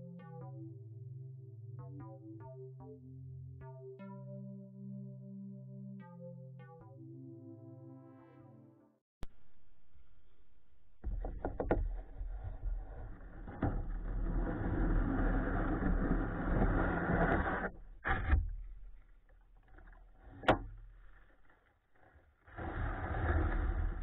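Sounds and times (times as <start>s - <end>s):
sharp knocks: 11.0s - 12.1s
kayak hull scraping over grass: 11.0s - 24.0s.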